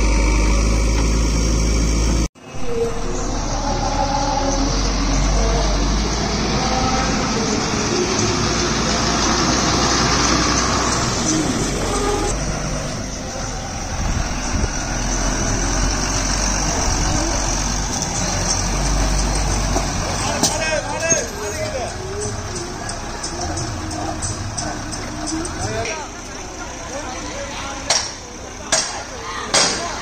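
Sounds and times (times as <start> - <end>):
lorry diesel engine running: 0.0 - 30.0.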